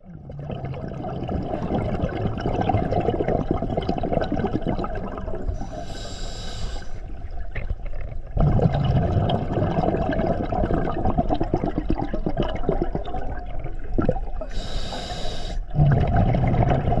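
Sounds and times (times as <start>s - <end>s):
underwater exhale bubbling: 0.0s - 17.0s
regulator inhale whistling hiss: 5.6s - 7.1s, 14.5s - 15.7s.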